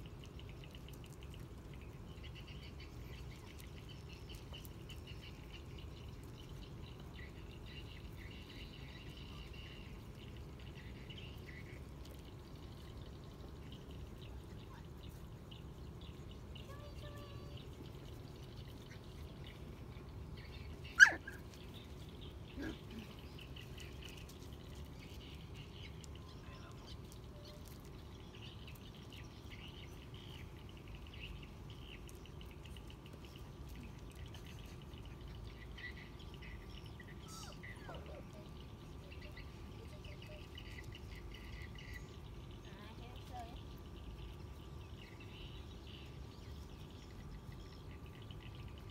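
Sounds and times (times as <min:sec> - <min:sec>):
faint bird chirping: 0:00.0 - 0:48.9
puppy yelping: 0:20.9 - 0:21.5, 0:22.6 - 0:23.1
puppy whimpering: 0:21.0 - 0:21.4.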